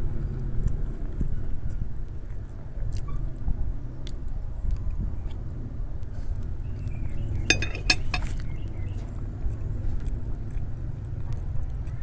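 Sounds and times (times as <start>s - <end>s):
cutlery clinking on glass plate: 7.4s - 8.4s.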